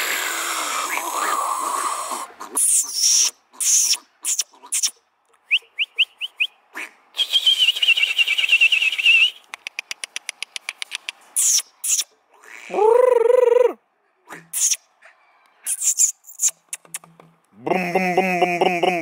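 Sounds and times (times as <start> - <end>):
short rising mouth squeaks: 2.0 - 5.0, 11.4 - 13.7, 14.3 - 14.9, 15.6 - 17.2
rapid mouth clicks: 9.4 - 12.1, 15.7 - 17.2.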